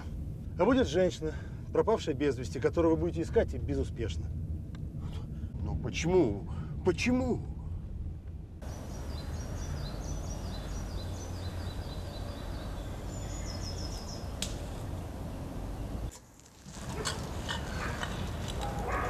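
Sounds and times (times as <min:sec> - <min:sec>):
steady low rumble: 0:00.0 - 0:16.1
birds chirping: 0:08.6 - 0:16.1, 0:17.2 - 0:19.0.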